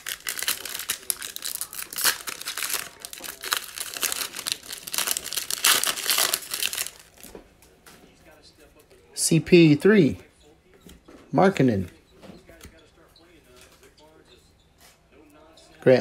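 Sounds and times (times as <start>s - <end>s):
foil wrapper tearing and crinkling: 0.0s - 7.3s.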